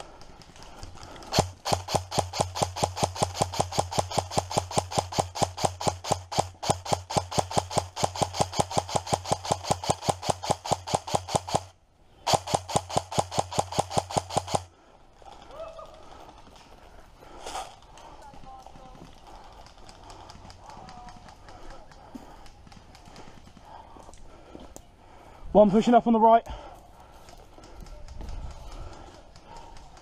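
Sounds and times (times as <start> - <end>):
airsoft gun firing bursts: 0.1 - 14.7, 18.3 - 23.8, 27.6 - 30.0.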